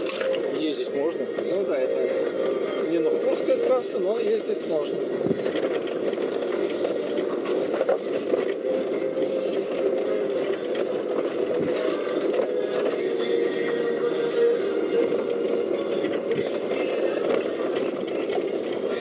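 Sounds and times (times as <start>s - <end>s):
vehicle engine and road noise: 0.0s - 19.0s.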